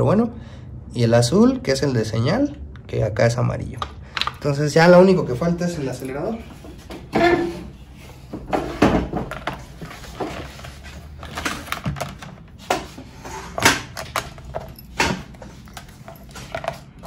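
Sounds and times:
clicks and knocks of handled parts: 3.7s - 4.5s, 11.1s - 17.0s.

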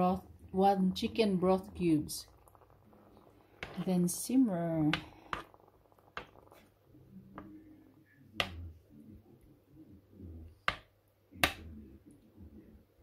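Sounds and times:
sauce stirring: 2.2s - 7.6s.

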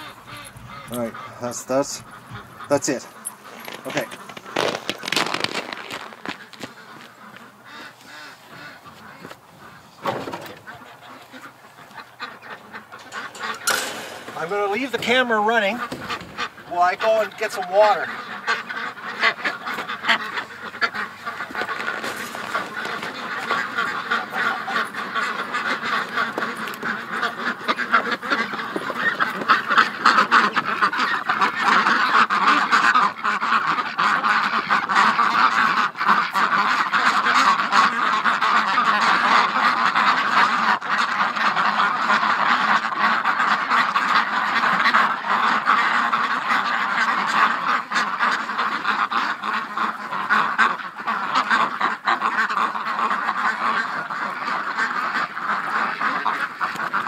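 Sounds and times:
ducks quacking: 0.0s - 57.0s.

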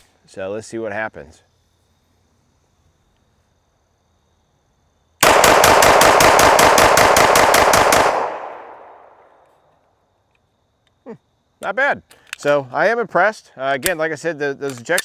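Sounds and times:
pistol rapid fire: 5.2s - 9.2s.

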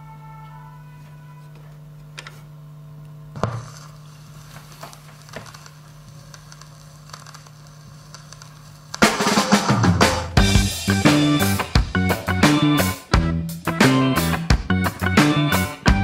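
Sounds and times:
vinyl crackles and pops: 3.0s - 9.8s.

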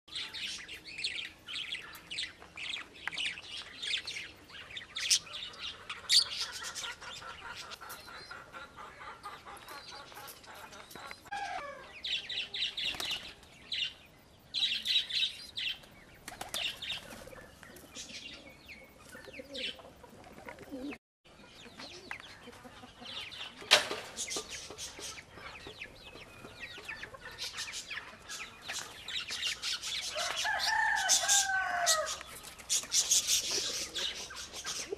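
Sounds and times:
pigeons flapping wings: 12.8s - 13.5s, 16.2s - 17.4s.

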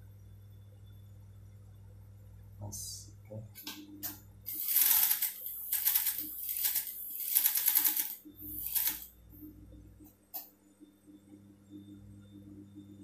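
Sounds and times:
sewing machine motor hum: 4.5s - 9.1s
sewing machine stitching: 4.5s - 9.1s.

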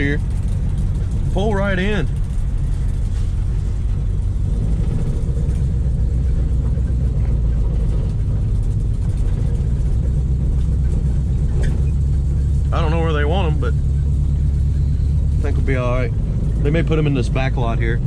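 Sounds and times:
car engine rumbling: 0.0s - 18.0s.

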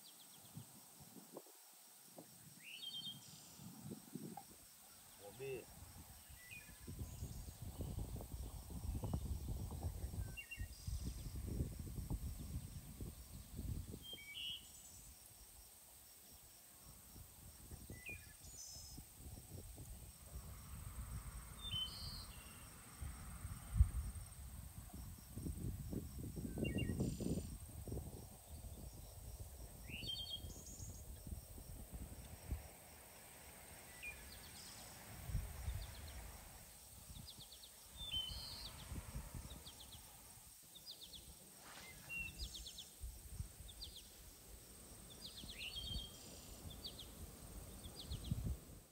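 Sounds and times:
wind rumble on microphone: 3.1s - 4.7s, 5.6s - 15.3s, 16.9s - 48.9s
birds chirping: 33.7s - 43.0s, 45.0s - 48.5s.

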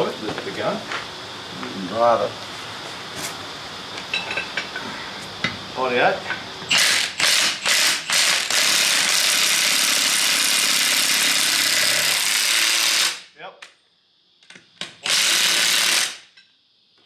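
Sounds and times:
impact wrench running: 6.7s - 13.2s, 15.0s - 16.3s.

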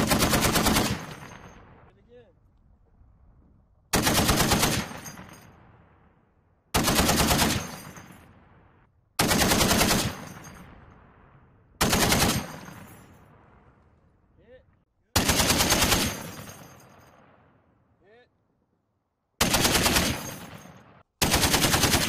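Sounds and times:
machine gun bursts with echo: 0.0s - 1.7s, 3.9s - 5.3s, 6.8s - 8.1s, 9.2s - 10.6s, 11.8s - 12.9s, 15.2s - 16.9s, 19.4s - 22.0s.

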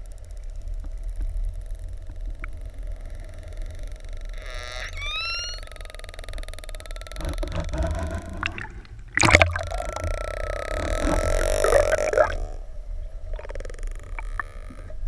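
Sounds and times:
underwater water noise: 0.0s - 15.0s
killer whale call: 2.7s - 15.0s.

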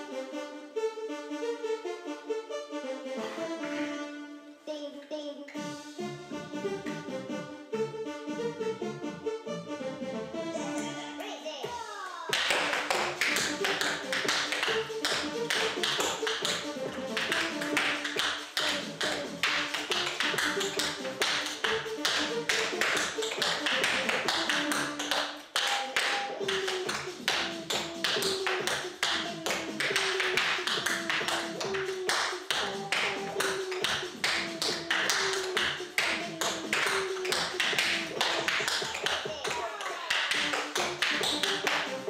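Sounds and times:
background music with melody: 0.0s - 42.0s
tap shoes on tap board: 11.6s - 42.0s.

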